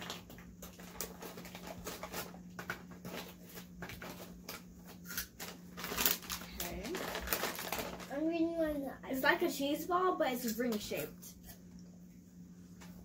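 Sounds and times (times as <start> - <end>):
plastic snack bag crinkling: 0.0 - 8.4.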